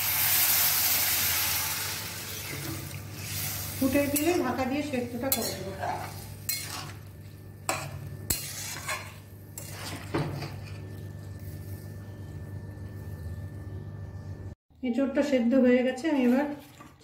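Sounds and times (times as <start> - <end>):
steady low hum: 2.6 - 14.6
metal spatula scraping a pan: 5.2 - 7.1, 7.7 - 10.8.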